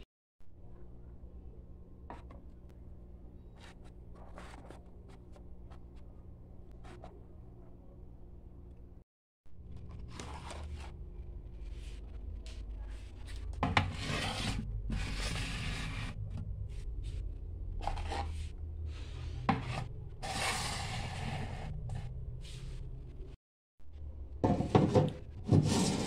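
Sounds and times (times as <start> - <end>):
plastic tubs scraping on shelf: 13.6 - 16.4, 24.4 - 26.0.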